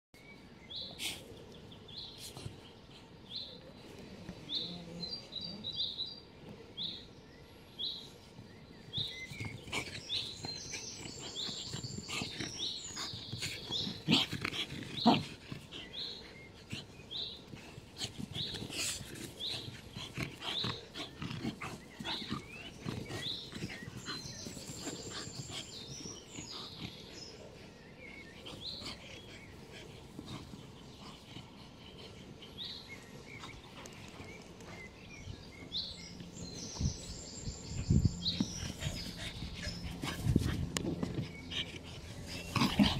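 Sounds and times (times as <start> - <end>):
bird chirping: 0.2 - 42.9
dogs vocalizing: 9.2 - 36.9, 37.7 - 42.9.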